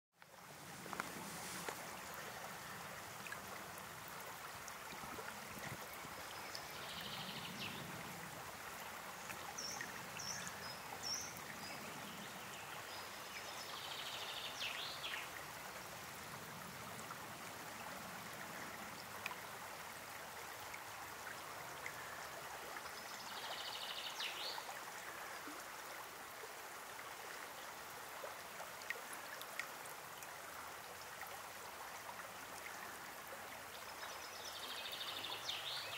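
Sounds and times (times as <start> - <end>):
river water flowing: 0.2 - 35.9.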